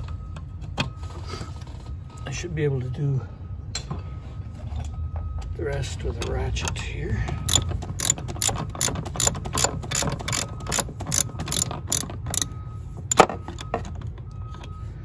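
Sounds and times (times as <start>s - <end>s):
ratchet wrench clicking: 7.5s - 12.5s.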